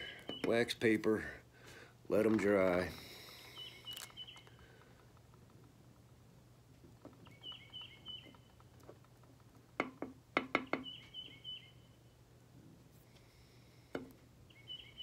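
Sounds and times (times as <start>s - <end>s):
songbird chirping: 0.0s - 1.0s, 2.1s - 6.2s, 6.9s - 12.3s, 14.4s - 15.0s.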